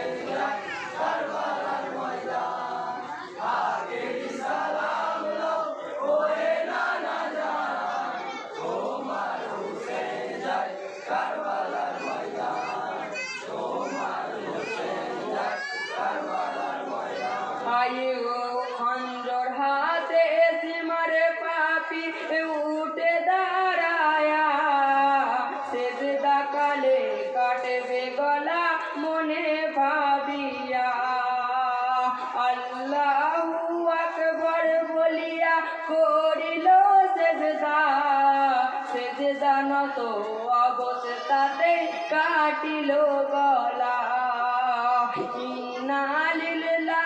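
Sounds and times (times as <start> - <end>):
men chanting in chorus: 0.0 - 18.1
men singing a lament: 0.0 - 47.0.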